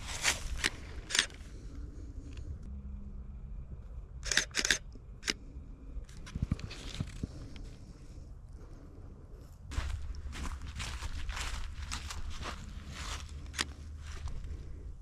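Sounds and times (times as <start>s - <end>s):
footsteps: 0.0s - 1.4s, 9.7s - 14.6s
camera shutter clicks: 4.2s - 5.4s.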